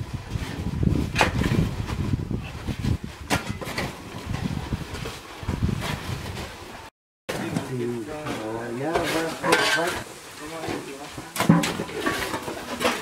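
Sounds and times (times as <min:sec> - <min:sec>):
wind rumbling on microphone: 0:00.0 - 0:06.9.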